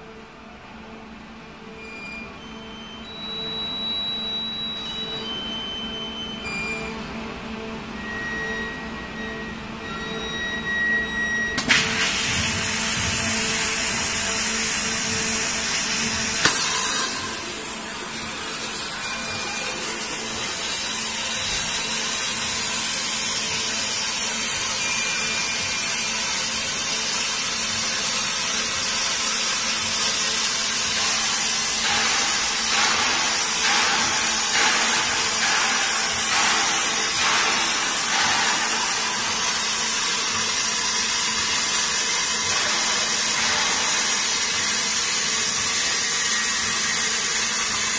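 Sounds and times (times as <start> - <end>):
sharp pop: 16.4 - 17.4.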